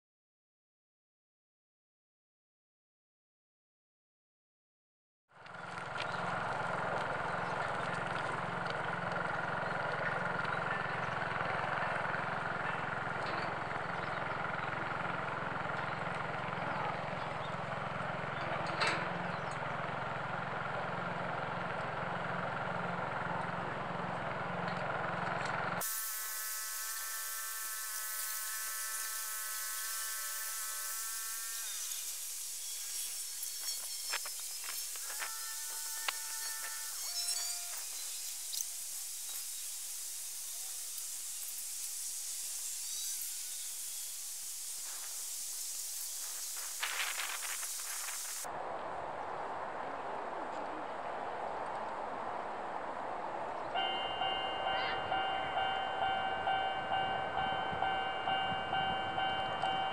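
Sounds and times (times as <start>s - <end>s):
machinery whine with low pulse: 22.2s - 48.5s, 54.0s - 59.9s.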